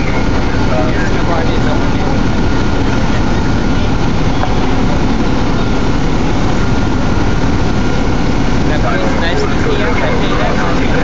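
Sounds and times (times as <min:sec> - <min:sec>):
faint steady whine: 0:00.0 - 0:11.0
heavy engine idling: 0:00.0 - 0:11.0.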